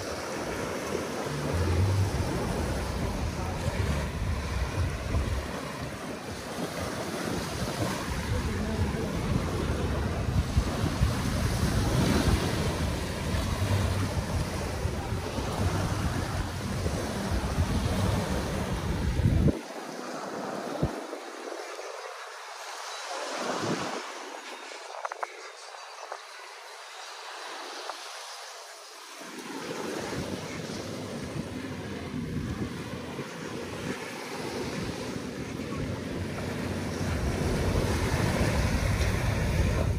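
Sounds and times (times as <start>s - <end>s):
wind buffeting microphone: 0.0s - 19.8s, 30.0s - 39.9s
surf washing onto shore: 0.0s - 39.9s.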